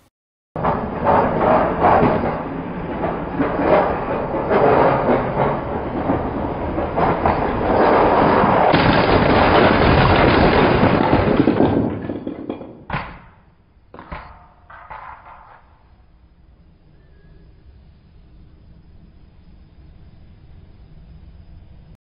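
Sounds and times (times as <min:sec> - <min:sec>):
toy train rushing and rumbling: 0:00.6 - 0:12.3.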